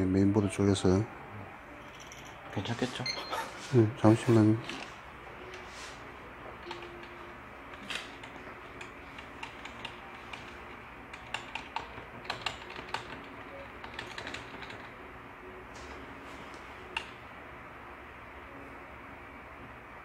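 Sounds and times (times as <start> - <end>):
computer hum: 0.0 - 20.0
keyboard keys clicking: 6.6 - 15.0.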